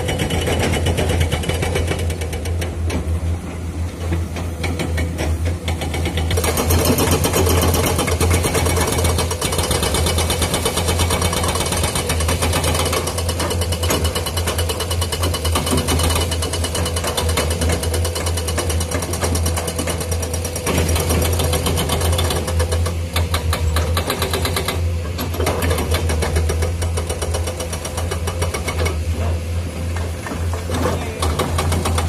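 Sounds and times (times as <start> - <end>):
hydraulic rock breakers hammering: 0.0 - 32.0
diesel engines droning: 12.3 - 32.0.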